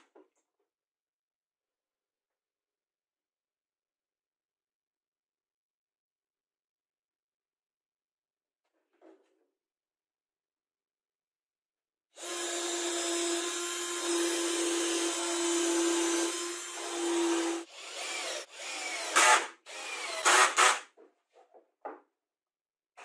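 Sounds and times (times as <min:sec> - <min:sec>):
cordless drill driving screw: 0:12.2 - 0:20.8.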